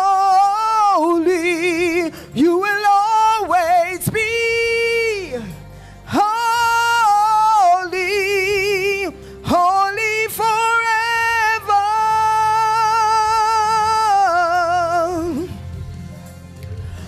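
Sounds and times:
woman singing into a microphone: 0:00.0 - 0:15.7.

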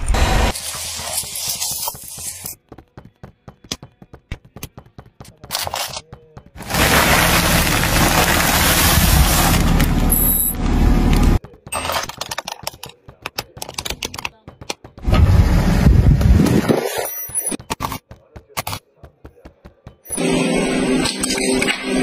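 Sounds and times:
crisp bag crunching: 0:06.6 - 0:10.4.

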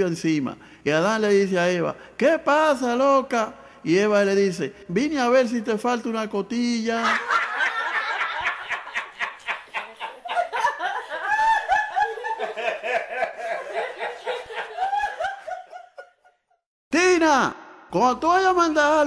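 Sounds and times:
group of people laughing: 0:07.0 - 0:16.6.

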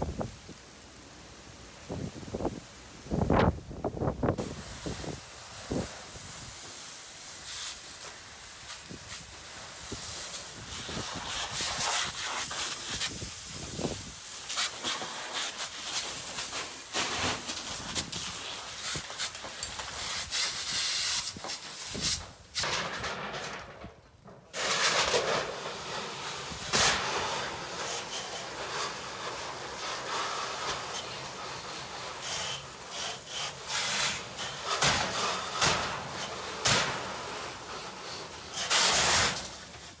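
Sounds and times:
fire hose jetting water: 0:00.0 - 0:22.9, 0:24.5 - 0:40.0
wind buffeting microphone: 0:01.8 - 0:06.6.

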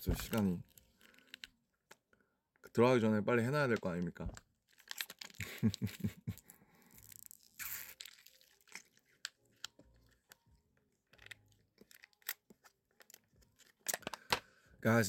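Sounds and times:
plastic bottle crackling: 0:03.7 - 0:06.0, 0:06.8 - 0:14.5.

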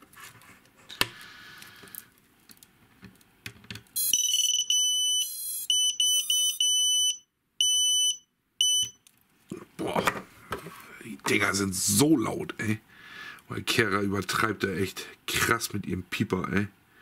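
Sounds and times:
high electronic beeps: 0:04.0 - 0:09.0.

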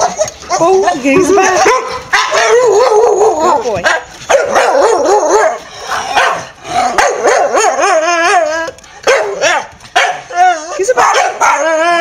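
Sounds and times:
dog yowling: 0:00.0 - 0:12.0
dog barking: 0:00.9 - 0:07.9, 0:09.0 - 0:10.3, 0:11.0 - 0:11.6.

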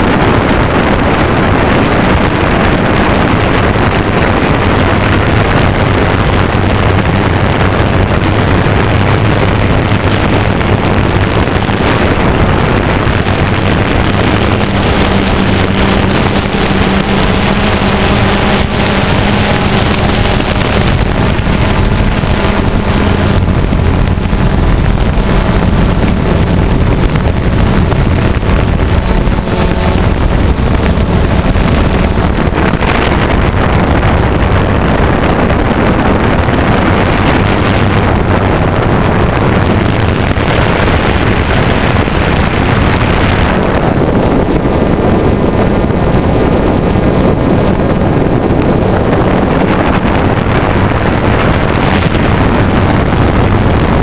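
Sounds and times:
wind buffeting microphone: 0:00.0 - 0:54.0
drone motors whirring: 0:13.4 - 0:33.4.

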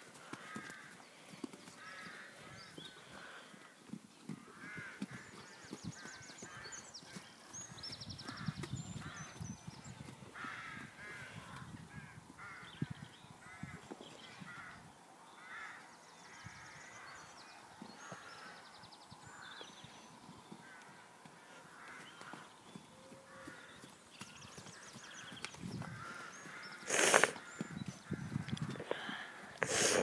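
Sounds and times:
horse hooves thudding on sand: 0:00.0 - 0:12.9, 0:19.4 - 0:29.7
crows cawing: 0:00.2 - 0:01.0, 0:01.8 - 0:03.7, 0:04.4 - 0:06.9, 0:10.4 - 0:12.8, 0:14.4 - 0:17.2, 0:18.0 - 0:18.6, 0:20.6 - 0:23.8, 0:24.7 - 0:29.7.

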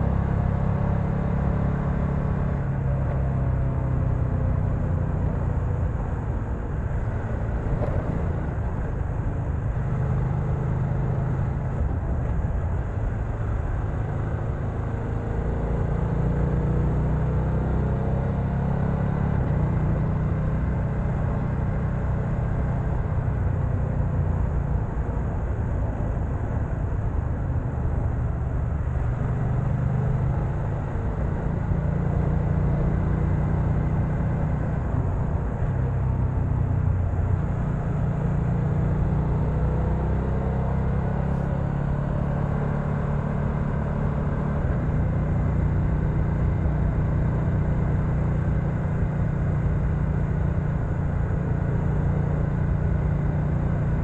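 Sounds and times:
motorcycle engine running: 0:18.4 - 0:54.0.

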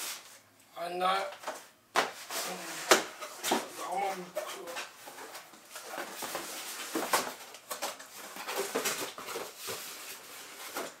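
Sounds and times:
cardboard rustling and scraping: 0:02.1 - 0:11.0.

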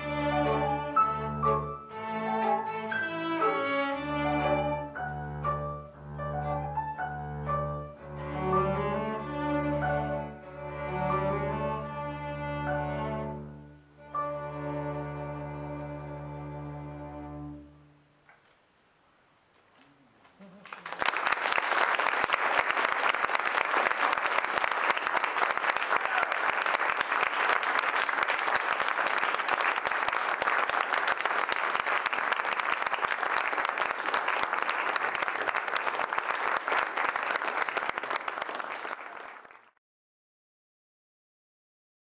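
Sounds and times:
audience applauding: 0:20.4 - 0:39.8.

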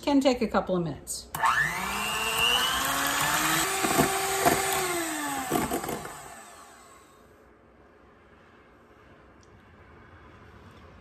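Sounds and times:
electric hand mixer running: 0:01.4 - 0:07.2.

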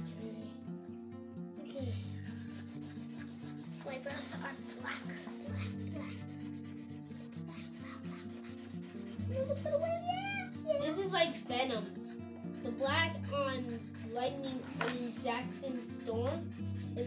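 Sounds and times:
markers scratching on paper: 0:00.0 - 0:00.6, 0:01.4 - 0:17.0.

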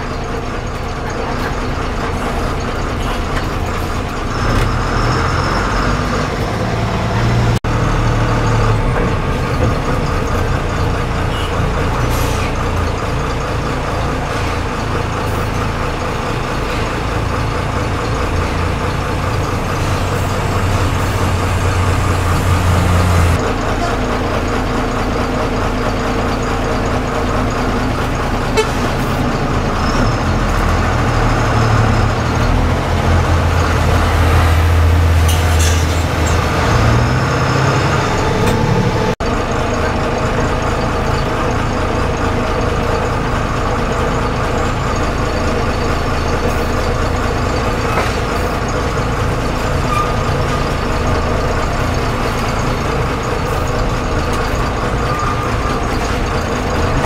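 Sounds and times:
bus engine running: 0:00.0 - 0:57.0
vehicle horns tooting: 0:11.3 - 0:11.7, 0:28.5 - 0:29.1.

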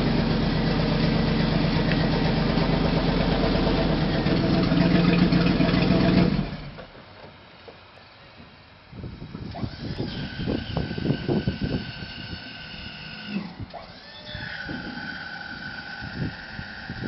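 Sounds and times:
hydraulic pump whining: 0:09.2 - 0:17.0.

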